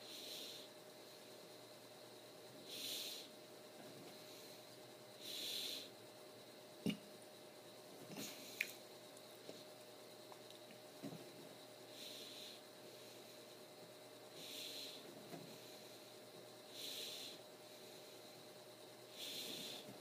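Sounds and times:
soft breathing: 0.0s - 1.8s, 2.6s - 6.0s, 11.1s - 20.0s.

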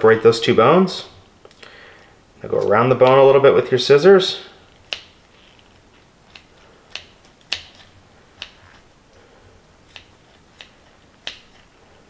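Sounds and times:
kitchen shears snipping: 4.6s - 8.9s, 9.8s - 12.0s.

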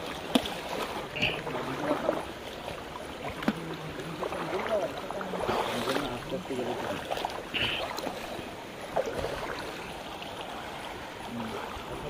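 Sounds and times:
water splashing as people wade: 0.0s - 12.0s
faint voices: 1.1s - 2.3s.

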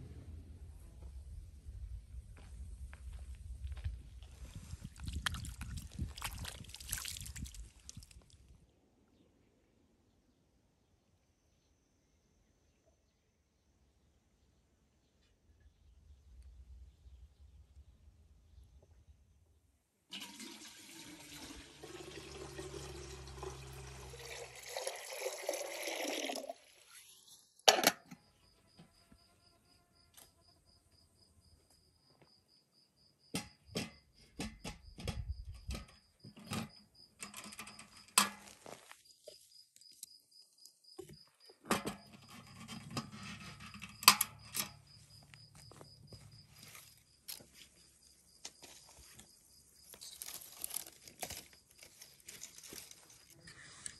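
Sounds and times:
liquid pouring into a vessel: 4.7s - 8.2s, 20.1s - 26.9s
cricket chirping: 28.0s - 53.9s.

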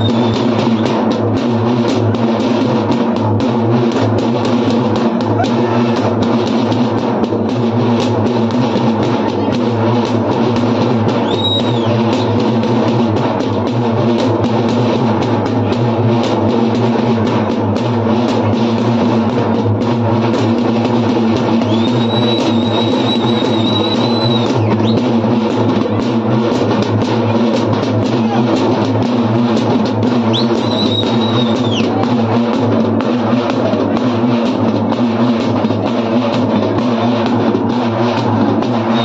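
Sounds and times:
shrill whistle: 0.0s - 0.8s, 11.2s - 12.3s, 21.6s - 25.1s, 30.3s - 31.9s
drums beaten by hand: 0.0s - 39.0s.

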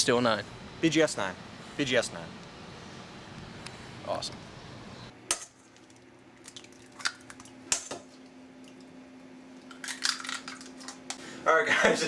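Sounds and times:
faint steady hum: 0.0s - 12.0s
eggshell crackling: 5.5s - 11.2s.

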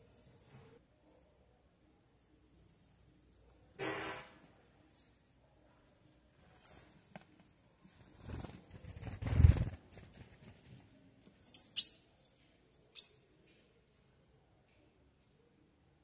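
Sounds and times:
sharp high bird calls: 11.5s - 12.0s, 13.0s - 13.2s.

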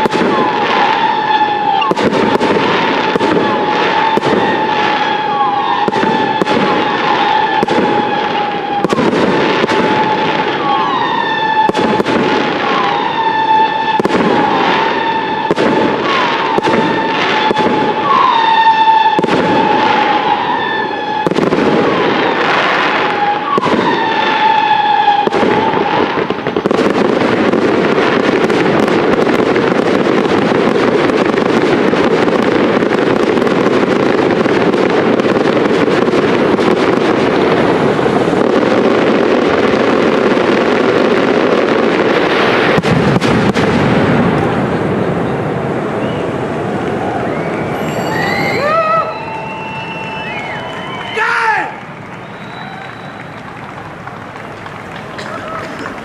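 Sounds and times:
fireworks launching and bursting: 0.0s - 56.0s
steady high tone: 47.5s - 50.7s.

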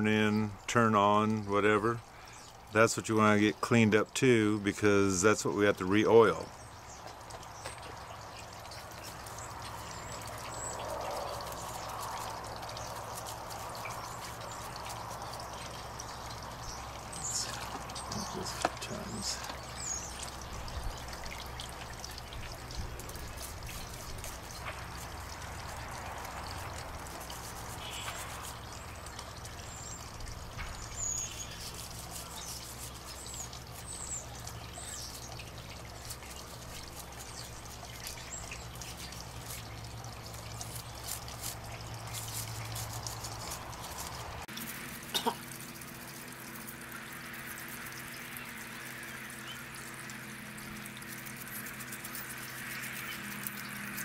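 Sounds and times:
liquid sloshing and dripping: 5.4s - 54.0s
toothbrush scrubbing metal: 11.4s - 16.1s, 22.7s - 29.9s, 31.0s - 54.0s.

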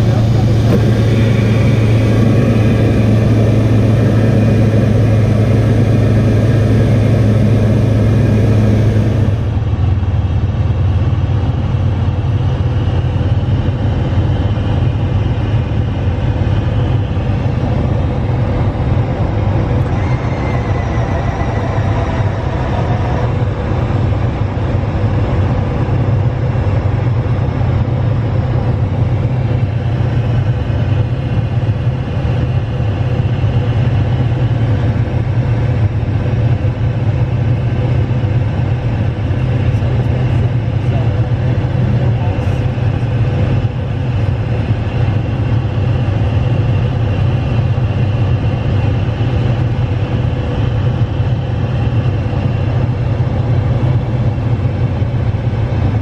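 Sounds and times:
light aircraft engine droning: 0.0s - 56.0s.

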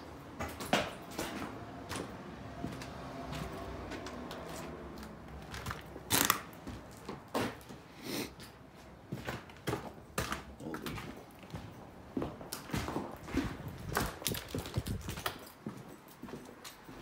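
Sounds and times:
footsteps crunching over debris: 0.2s - 17.0s.

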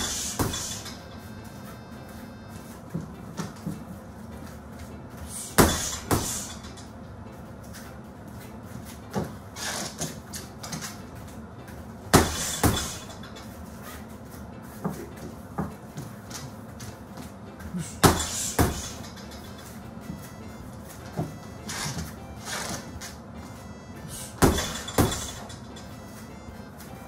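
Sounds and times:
boxing gloves hitting heavy bag: 0.0s - 1.0s, 5.5s - 6.7s, 12.1s - 13.2s, 17.8s - 19.1s, 24.2s - 25.5s.

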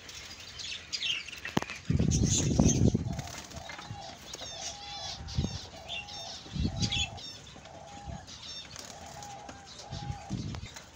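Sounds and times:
budgerigars chirping: 0.3s - 10.9s.

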